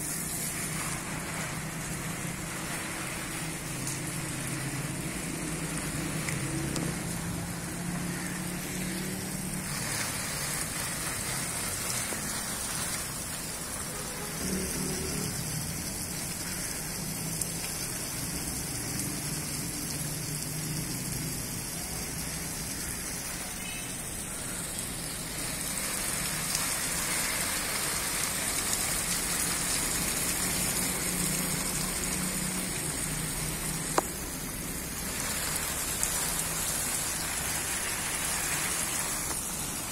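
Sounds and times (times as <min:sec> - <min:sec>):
hose water spraying on leaves: 0:00.0 - 0:39.9.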